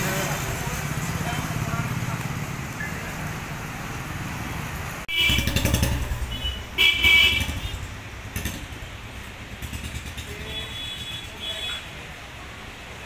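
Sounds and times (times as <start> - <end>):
street traffic: 0.0 - 13.0
horn honking: 5.1 - 7.9
motorbike engine running: 5.1 - 8.7.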